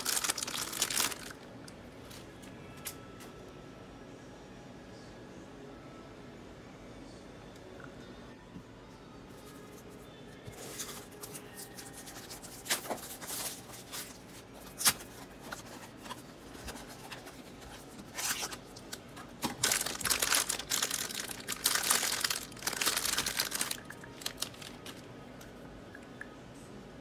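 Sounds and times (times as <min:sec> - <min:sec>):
foil bag tearing and crinkling: 0:00.0 - 0:01.4, 0:19.4 - 0:25.0.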